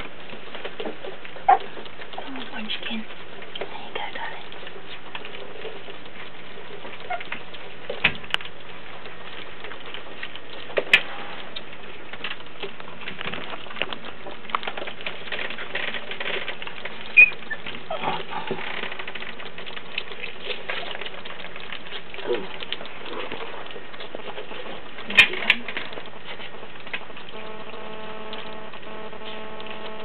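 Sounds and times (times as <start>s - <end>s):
puppies smacking and licking: 0.0s - 27.4s
high puppy squeak: 17.1s - 17.7s.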